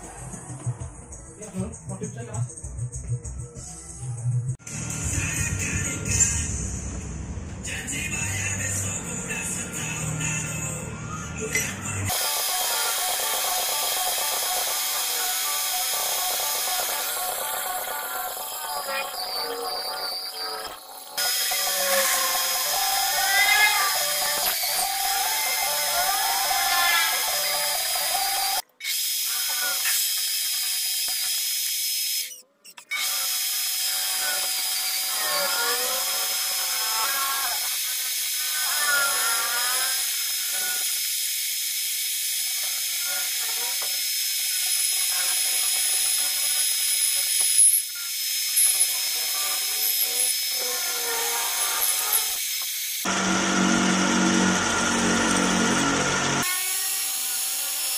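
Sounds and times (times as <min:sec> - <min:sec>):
drill bit squealing: 0:11.5 - 0:30.0, 0:32.1 - 0:41.0, 0:42.6 - 0:52.4
lathe machine hum: 0:53.1 - 0:56.4.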